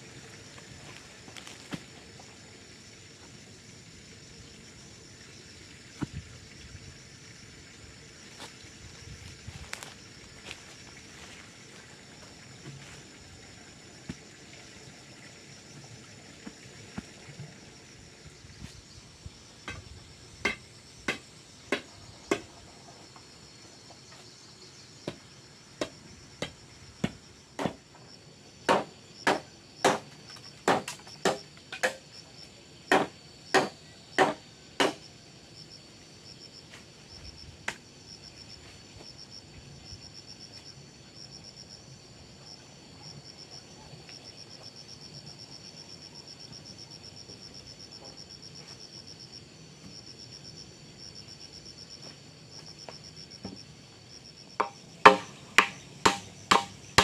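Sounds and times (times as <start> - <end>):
insects buzzing: 0.0 - 57.0
bamboo pole knocking ground: 0.6 - 2.0, 6.0 - 6.4, 9.2 - 11.5, 19.7 - 22.5, 25.8 - 27.8, 28.7 - 32.0, 54.6 - 57.0.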